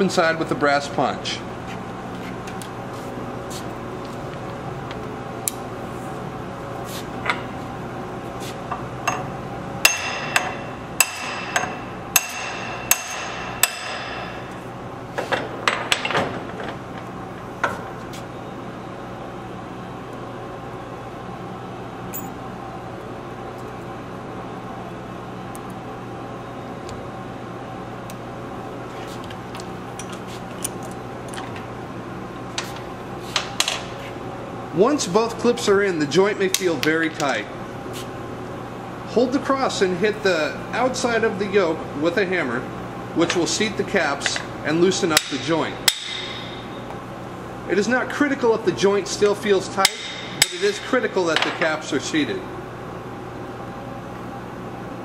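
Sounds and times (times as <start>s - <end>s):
hammer striking metal punch: 9.8s - 14.4s, 45.2s - 46.7s, 49.8s - 50.6s.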